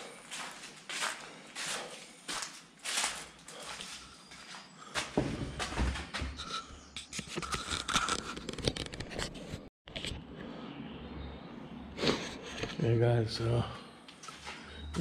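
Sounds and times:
footsteps crunching on debris: 0:00.2 - 0:06.4.

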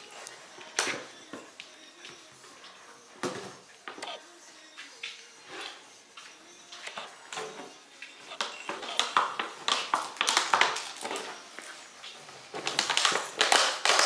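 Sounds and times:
plastic bottle crinkling and clattering: 0:08.4 - 0:14.0.

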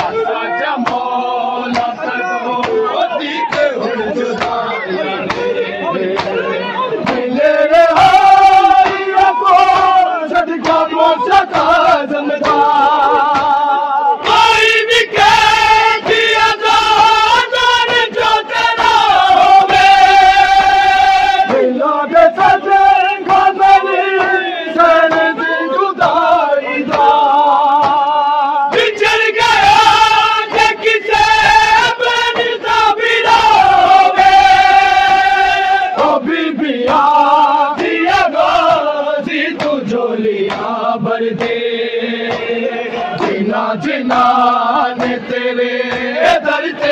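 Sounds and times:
men singing a lament: 0:00.0 - 0:46.9
hands slapping chests: 0:00.8 - 0:02.0, 0:04.3 - 0:04.6, 0:07.9 - 0:16.5, 0:22.4 - 0:25.4, 0:26.0 - 0:28.0, 0:36.8 - 0:46.9.

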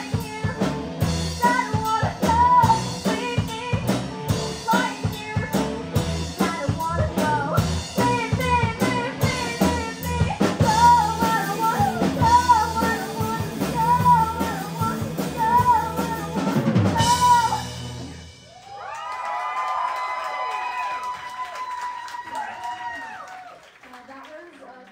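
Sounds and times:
live rock band playing: 0:00.0 - 0:18.7.

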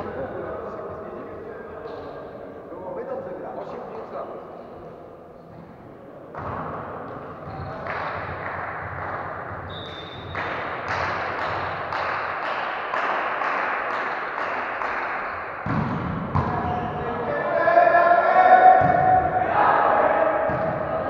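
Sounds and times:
crowd noise in a hall: 0:00.0 - 0:21.0
rhythmic clapping: 0:07.7 - 0:09.6, 0:10.2 - 0:16.6.

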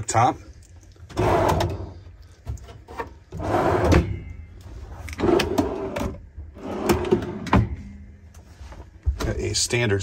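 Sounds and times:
drawers sliding open and shut: 0:01.1 - 0:08.0.

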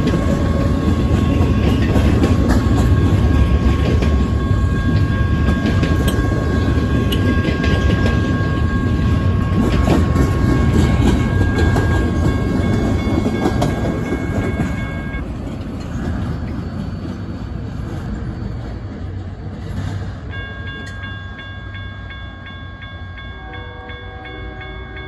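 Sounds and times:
freight train rumbling past: 0:00.0 - 0:25.0
steady high ringing: 0:00.8 - 0:15.4, 0:16.1 - 0:25.0
grade crossing bell ringing: 0:01.0 - 0:15.3, 0:20.3 - 0:25.0.

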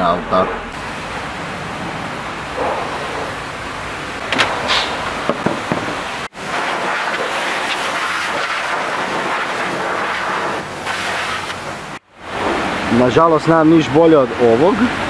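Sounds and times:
pressure washer spraying water: 0:00.8 - 0:12.6.

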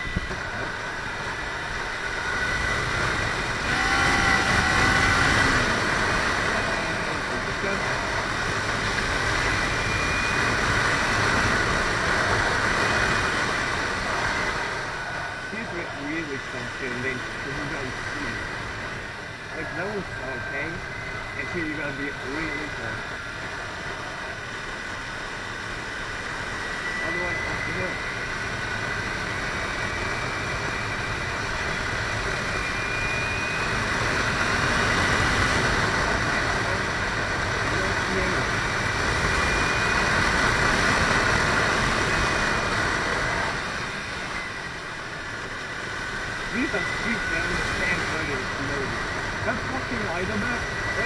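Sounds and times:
motorcycle engine running: 0:00.0 - 0:10.5
wind and road noise: 0:00.0 - 0:51.0.

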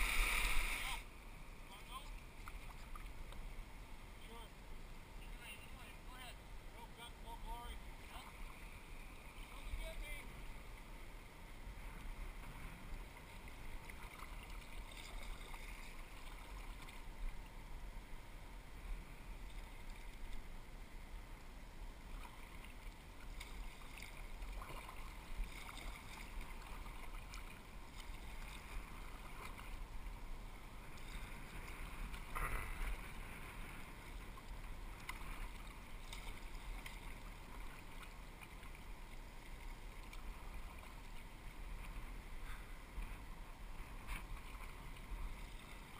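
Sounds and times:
rush of moving water: 0:00.0 - 0:45.9
paddle splashes: 0:12.0 - 0:17.5, 0:22.0 - 0:45.9.

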